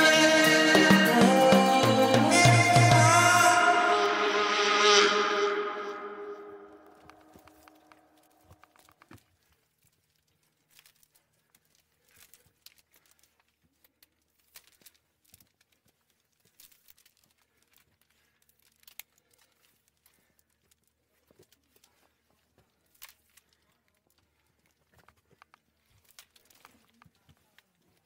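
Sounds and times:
faint clicks and scuffs: 6.9s - 28.0s.

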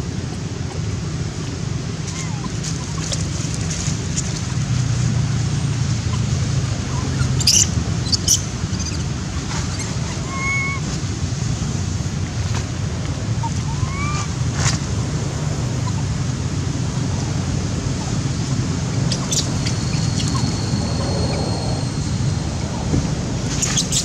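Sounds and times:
wind buffeting microphone: 11.1s - 24.0s
short high chirps: 19.0s - 22.9s.

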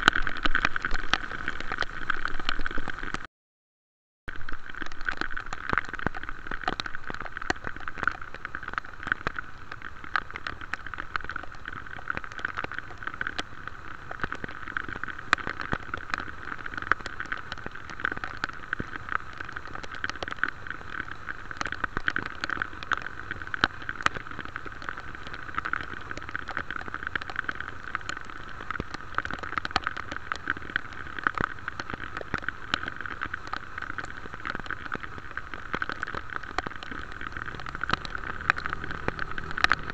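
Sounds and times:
steady rain with drop ticks: 0.0s - 3.3s, 4.3s - 39.9s.

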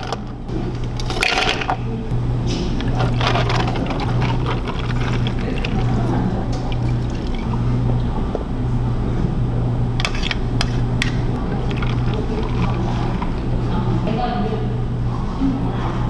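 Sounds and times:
low hum: 0.0s - 16.0s
liquid pouring over ice: 3.0s - 7.6s.

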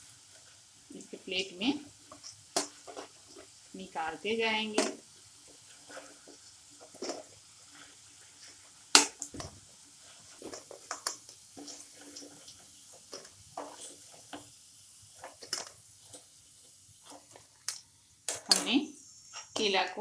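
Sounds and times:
spoon scraping and tapping pan: 2.1s - 3.6s, 4.8s - 9.5s, 10.1s - 14.5s, 15.2s - 16.3s, 17.0s - 19.8s.

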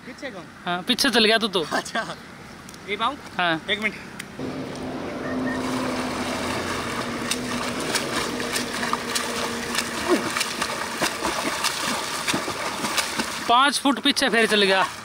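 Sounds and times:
faint steady hum: 4.4s - 13.5s
swimmer splashing water: 4.4s - 15.0s
arms slapping water surface: 5.6s - 15.0s.

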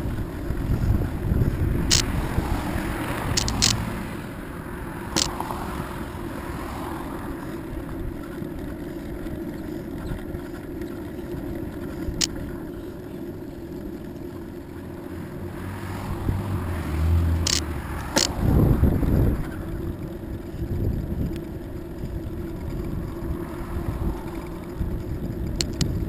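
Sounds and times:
bicycle rolling on asphalt: 0.0s - 26.0s
sharp clicks: 1.9s - 2.2s, 3.2s - 3.9s, 5.1s - 5.4s, 12.2s - 12.5s, 17.4s - 18.4s, 25.3s - 26.0s.

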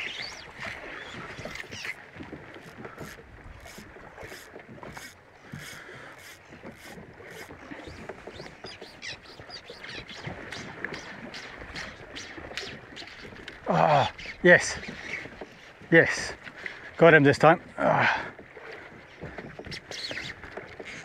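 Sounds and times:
water slapping against boat hull: 0.0s - 21.0s.

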